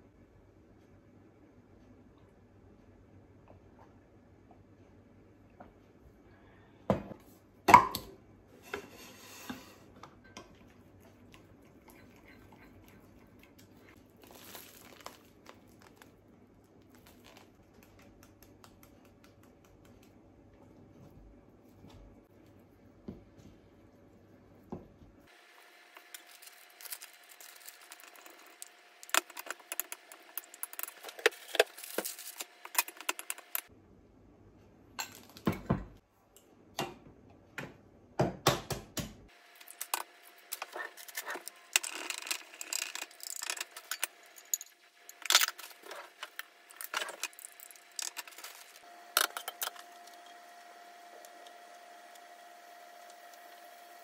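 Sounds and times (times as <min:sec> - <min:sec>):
faint steady hum: 0:39.3 - 0:54.0
utensils and bowls clinking: 0:39.6 - 0:49.8.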